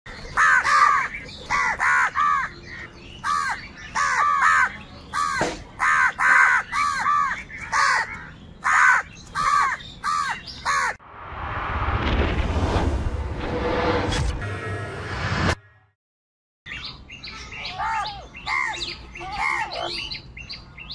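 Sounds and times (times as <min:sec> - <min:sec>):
crows cawing: 0:00.3 - 0:11.0, 0:17.7 - 0:20.0
whoosh: 0:11.0 - 0:15.7.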